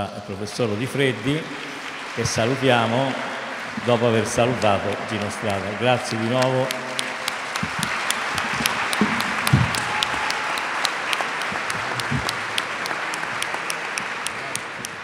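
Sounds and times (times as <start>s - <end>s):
audience applauding: 0.6s - 15.0s
sharp nearby claps: 1.0s - 15.0s
low thumps: 7.6s - 10.3s.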